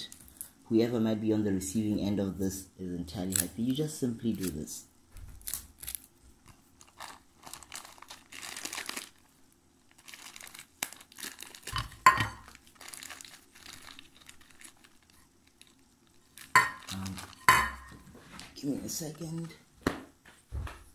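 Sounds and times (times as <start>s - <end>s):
plastic bag crinkling: 5.4s - 18.0s.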